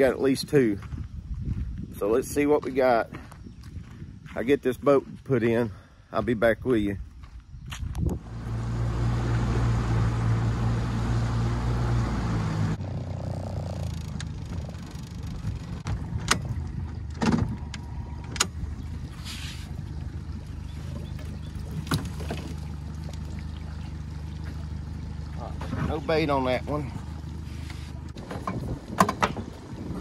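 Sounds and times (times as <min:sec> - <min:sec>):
outboard motor running: 0:08.2 - 0:30.0.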